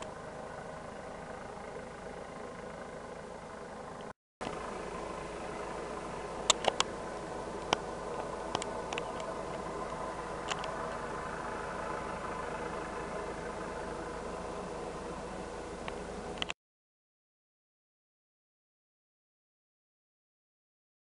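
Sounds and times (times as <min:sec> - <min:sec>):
distant helicopter hovering: 0:00.0 - 0:16.5
sharp clicks: 0:06.5 - 0:06.9, 0:07.6 - 0:11.0.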